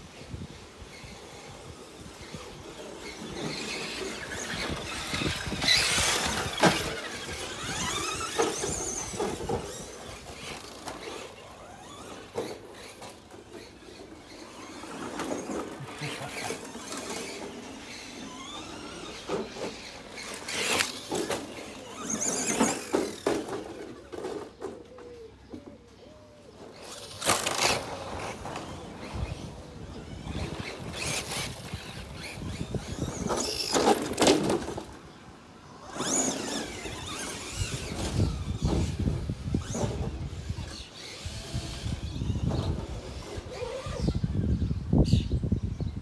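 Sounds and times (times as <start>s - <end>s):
electric motors whining: 0.1s - 45.3s
tyres scrabbling over dirt: 0.8s - 44.3s.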